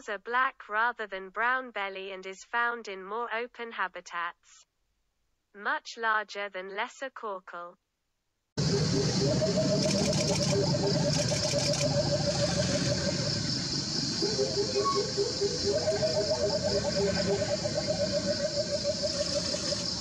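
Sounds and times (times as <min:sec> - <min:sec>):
high insect-like drone: 0:08.6 - 0:20.0
rapid pulsed animal calls: 0:08.6 - 0:20.0.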